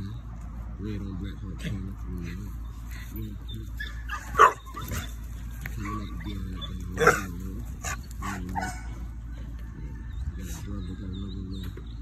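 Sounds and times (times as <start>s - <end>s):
dog whining and yipping: 3.8s - 5.2s.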